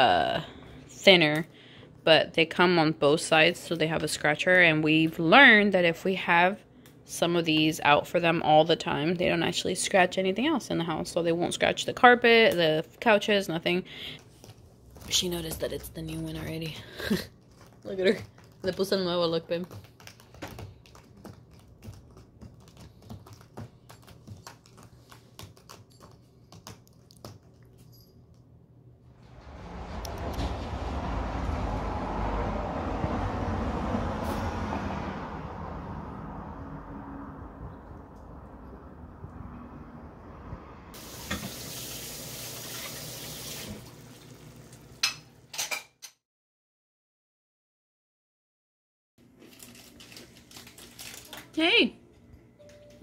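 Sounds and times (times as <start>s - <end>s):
cat scratching cardboard: 17.3s - 27.4s
pan and utensils clattering: 45.0s - 46.2s.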